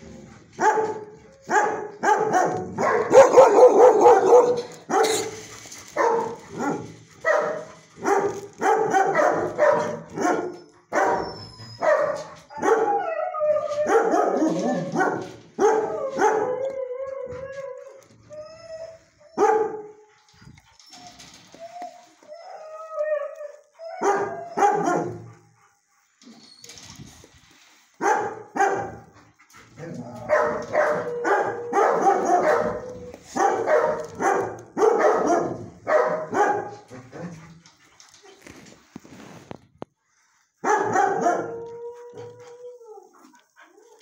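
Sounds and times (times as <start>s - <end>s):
dogs barking: 0.6s - 5.4s, 6.0s - 13.0s, 13.8s - 16.5s, 19.4s - 19.8s, 24.0s - 25.4s, 28.0s - 29.1s, 30.2s - 37.3s, 40.6s - 41.6s
dogs howling and yipping: 10.9s - 19.6s, 20.2s - 25.3s, 29.8s - 34.3s, 40.9s - 44.0s.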